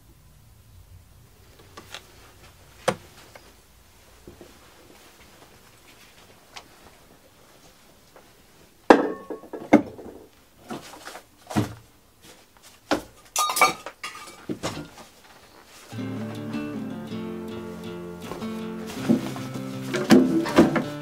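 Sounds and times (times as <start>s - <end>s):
acoustic guitar music: 15.9s - 21.0s.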